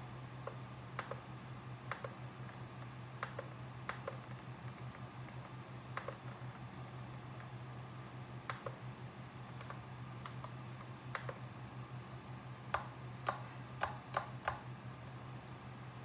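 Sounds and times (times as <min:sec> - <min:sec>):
steady low hum: 0:00.0 - 0:16.0
transmitter switches clicking: 0:08.5 - 0:08.8, 0:12.7 - 0:14.7.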